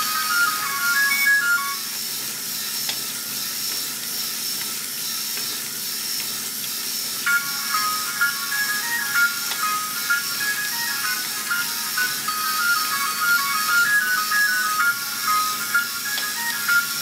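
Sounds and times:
high-pitched carousel tune: 0:00.0 - 0:02.0, 0:07.2 - 0:17.0.

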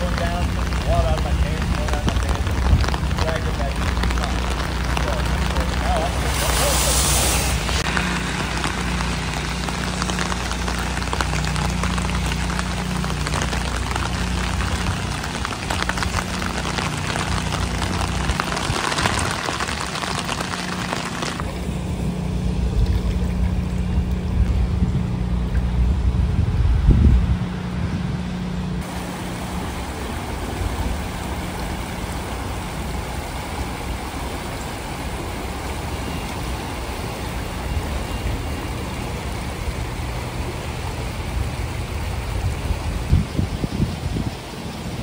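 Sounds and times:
creek water rushing: 0:00.0 - 0:25.6, 0:28.8 - 0:45.0
low steady hum: 0:00.0 - 0:43.9
wind bumps on microphone: 0:24.1 - 0:28.2, 0:42.4 - 0:44.4.

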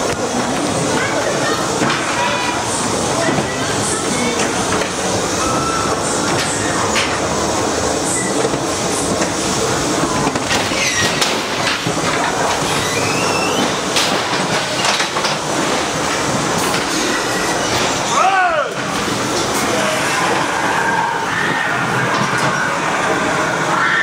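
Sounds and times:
ride car rattling on steel track: 0:00.0 - 0:24.0
wheel squeals: 0:05.3 - 0:07.2, 0:10.5 - 0:11.5, 0:12.6 - 0:13.9.

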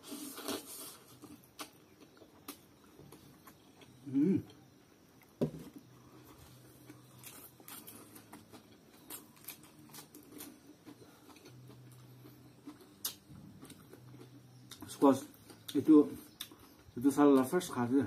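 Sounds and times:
chewing noodles: 0:06.1 - 0:17.0.

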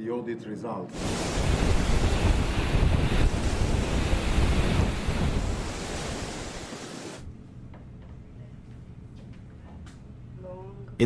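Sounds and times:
sea rushing: 0:01.0 - 0:07.3
wind buffeting microphone: 0:01.0 - 0:07.3.

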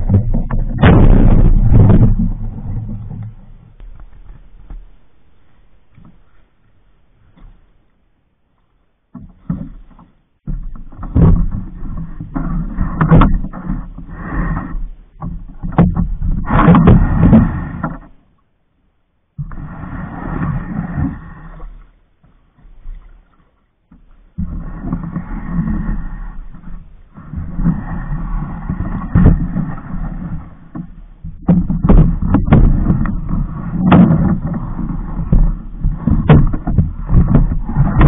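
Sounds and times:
canoe hull scraping and knocking: 0:00.0 - 0:05.0, 0:05.9 - 0:07.8, 0:08.5 - 0:18.4, 0:19.4 - 0:38.0
water sloshing: 0:00.0 - 0:06.5, 0:20.6 - 0:38.0.

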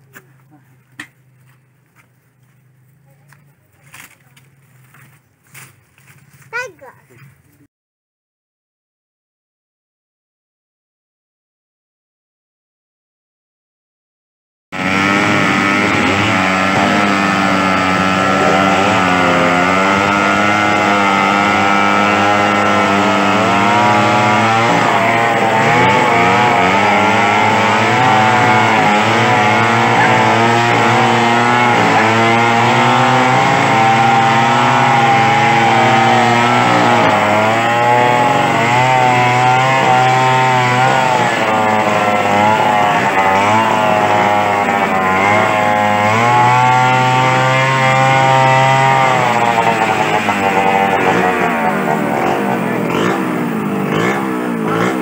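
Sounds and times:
chainsaw cutting wood: 0:14.8 - 0:55.0.

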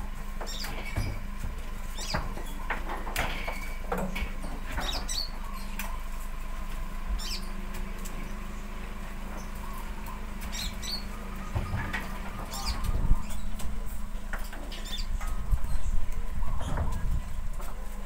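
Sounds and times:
low steady hum: 0:00.0 - 0:18.0
fruit bunches knocking: 0:09.2 - 0:18.0.

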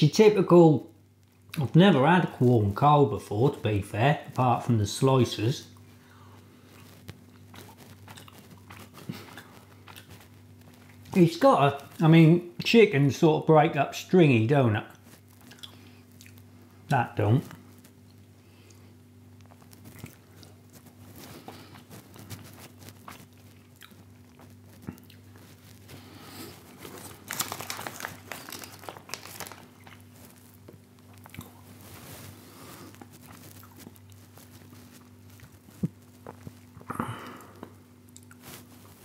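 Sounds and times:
person chewing: 0:05.7 - 0:11.2, 0:14.9 - 0:16.6, 0:17.5 - 0:39.0
plastic packaging crinkling: 0:19.4 - 0:36.9, 0:38.2 - 0:39.0.

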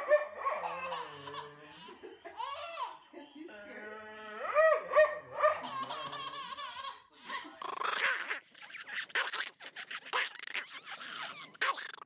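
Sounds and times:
small dog growling: 0:07.6 - 0:08.4.

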